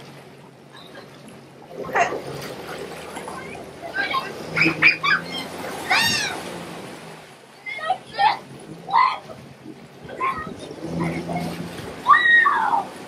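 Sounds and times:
jet ski humming: 0.0 - 13.0
water churning: 0.0 - 13.0
children squealing: 3.9 - 6.5, 11.0 - 12.9.

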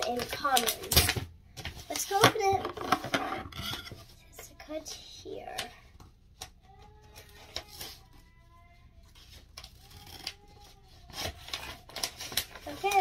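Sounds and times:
scissors snipping paper: 9.5 - 13.0.

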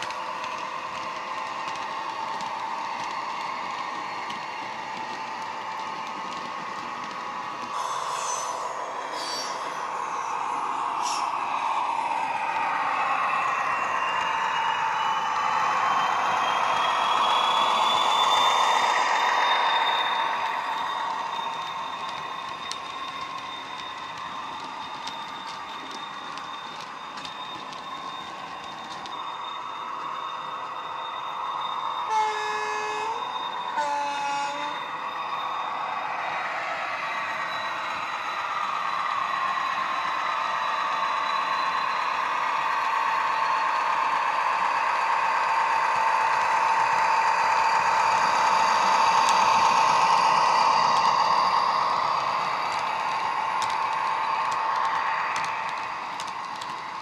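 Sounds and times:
model wagon wheels clicking: 0.0 - 7.8, 20.6 - 29.4, 48.2 - 57.0.

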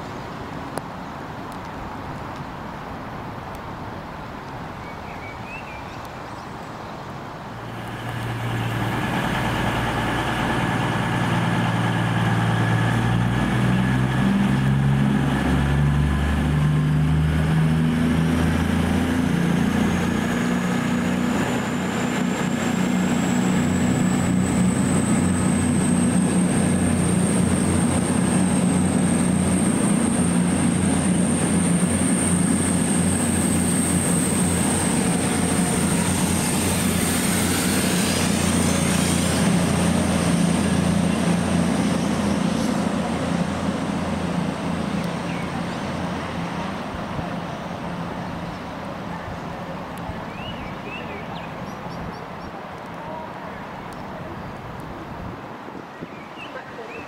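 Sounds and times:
train deep drone: 7.5 - 51.6.

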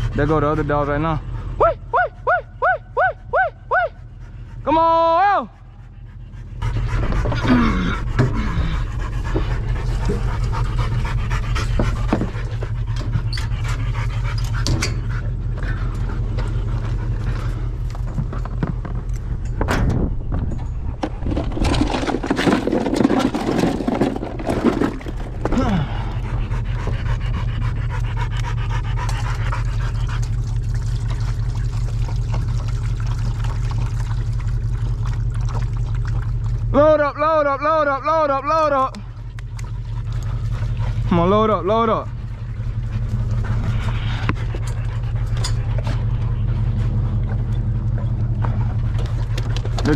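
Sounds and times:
dogs panting hard: 0.0 - 2.4, 3.9 - 19.6, 20.9 - 35.6, 39.0 - 49.9
steady low hum: 0.0 - 49.9
knocks and rattles: 17.9 - 25.8.

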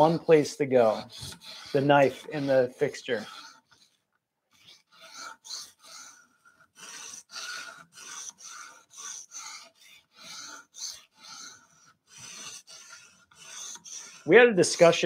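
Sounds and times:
sharpening stone rasping on blade: 0.0 - 14.3.

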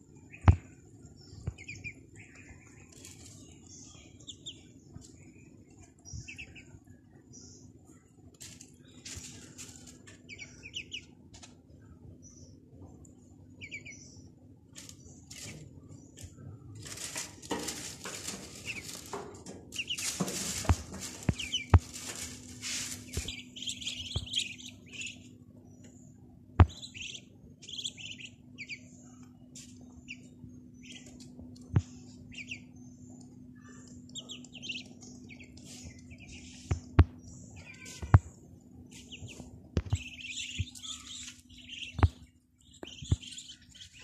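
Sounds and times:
faint steady hum: 0.0 - 44.0
ducklings peeping: 0.1 - 44.0
rustling and scuffling: 8.4 - 10.4, 14.7 - 25.2.

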